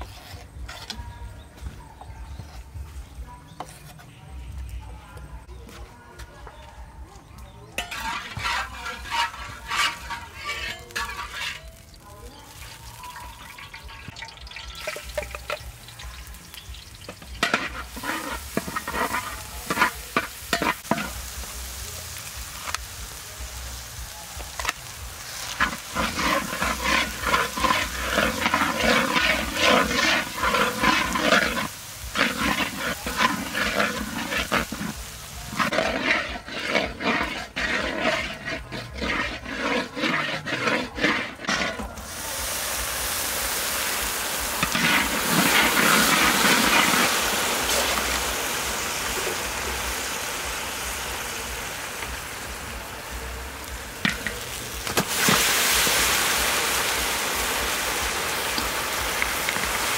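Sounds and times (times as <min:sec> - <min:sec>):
metal spatula scraping wok: 0:00.0 - 0:01.5, 0:03.5 - 0:04.2, 0:07.6 - 0:21.4, 0:24.5 - 0:42.4, 0:44.4 - 0:50.0, 0:51.9 - 0:57.5.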